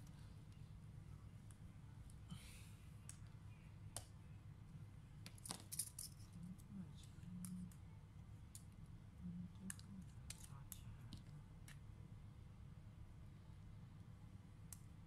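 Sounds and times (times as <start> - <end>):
steady low hum: 0.0 - 15.0
small parts clicking and tapping: 5.2 - 6.4, 9.6 - 11.8.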